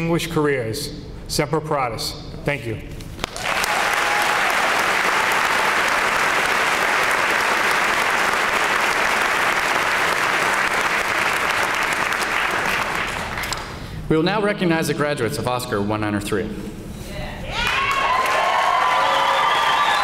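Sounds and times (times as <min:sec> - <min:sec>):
audience applauding: 0:03.2 - 0:13.7, 0:17.7 - 0:20.0.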